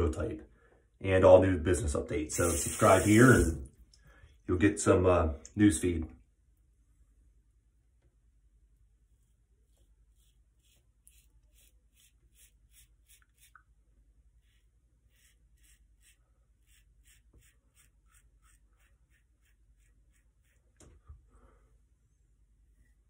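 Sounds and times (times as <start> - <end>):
razor scraping stubble: 9.6 - 13.6.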